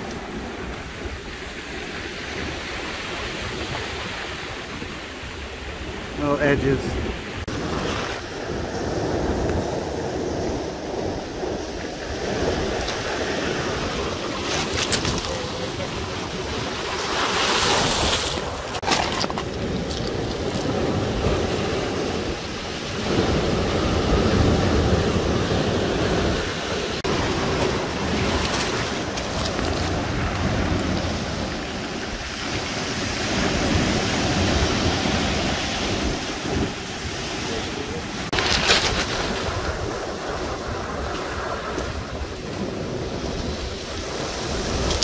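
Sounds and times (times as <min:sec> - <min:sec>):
waves washing over cobbles: 0:00.0 - 0:45.0
wave crashing onto stones: 0:13.9 - 0:22.1, 0:38.2 - 0:42.1.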